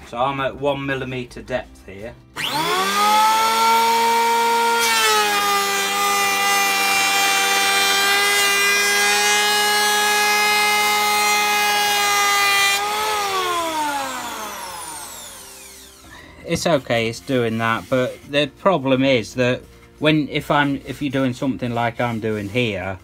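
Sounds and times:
electric planer cutting wood: 2.4s - 16.2s
motor winding down: 2.4s - 16.2s.

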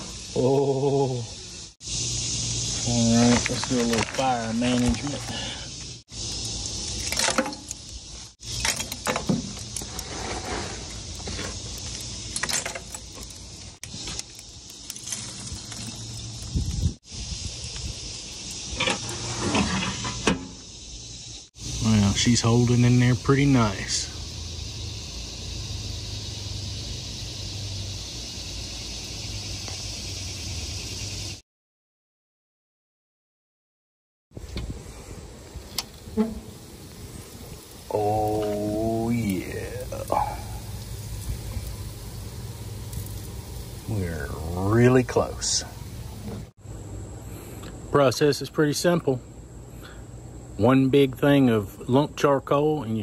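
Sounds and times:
steady hiss: 0.0s - 31.4s, 34.4s - 53.0s
charcoal clinking and clattering: 3.2s - 5.6s, 6.4s - 16.5s.

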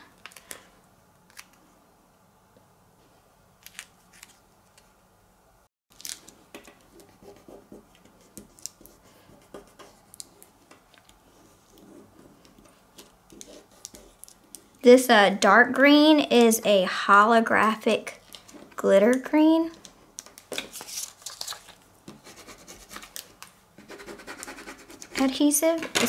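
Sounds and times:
vinyl tape rustling: 19.7s - 21.9s.

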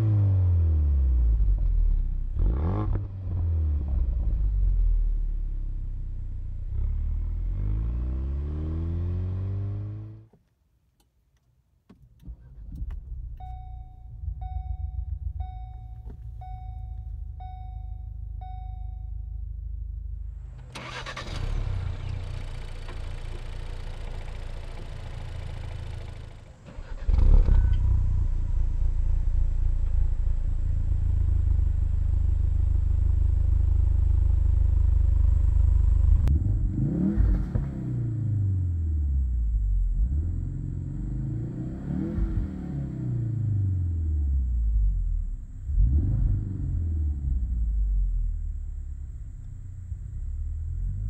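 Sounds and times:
car engine starting and idling: 11.0s - 51.0s
cabin warning chime: 13.4s - 19.4s.

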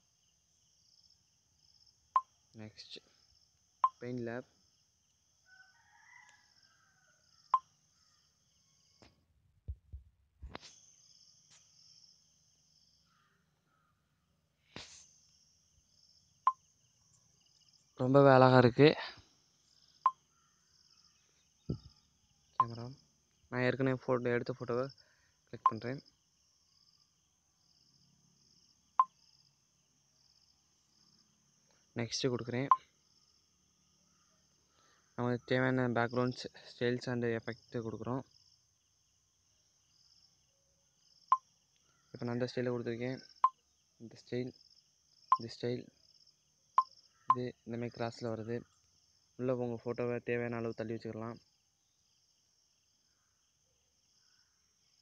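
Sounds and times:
insects chirring: 0.0s - 9.2s, 10.4s - 55.0s.

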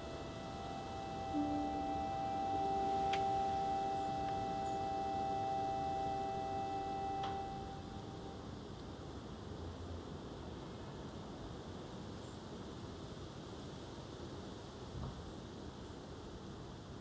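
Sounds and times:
ambient held ringing tones: 0.0s - 8.7s.

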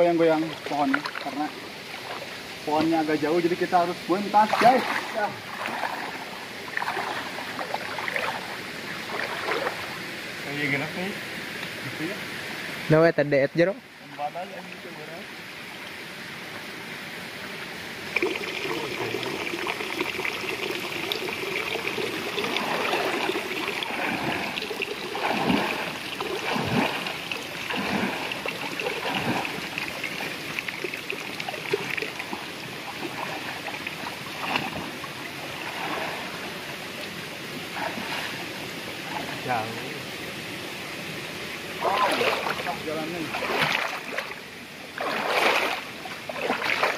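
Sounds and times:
swimmer splashing water: 0.0s - 10.1s, 17.9s - 39.7s, 41.7s - 46.9s
river rushing: 0.0s - 13.0s, 15.2s - 46.9s.

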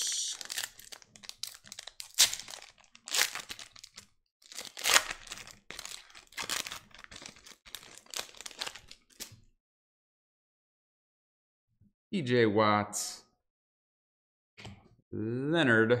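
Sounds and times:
foil wrapper crinkling and tearing: 0.0s - 9.3s.

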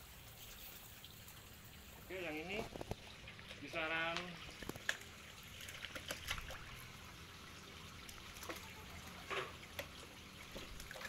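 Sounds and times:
water sloshing in plastic basin: 2.2s - 7.0s, 8.0s - 11.0s
splashes: 2.2s - 11.0s.

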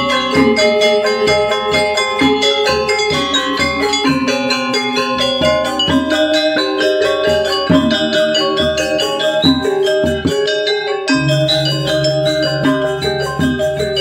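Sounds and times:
gamelan metallophones ringing: 0.0s - 14.0s
low sustained tones: 0.0s - 14.0s.

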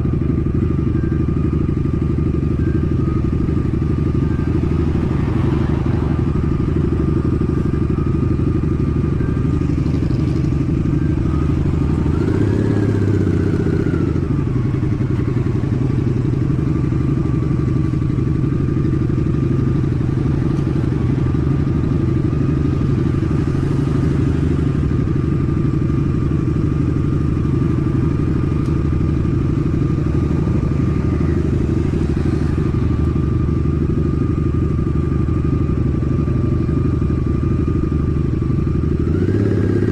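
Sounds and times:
motorcycle engine idling: 0.0s - 39.9s.

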